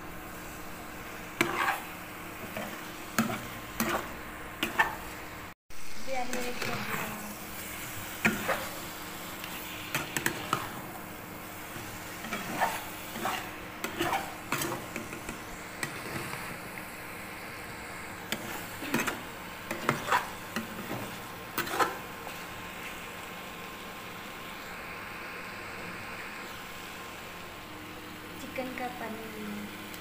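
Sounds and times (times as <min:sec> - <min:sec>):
spatula scraping frying pan: 0:01.0 - 0:05.2, 0:06.2 - 0:16.6, 0:18.3 - 0:22.5.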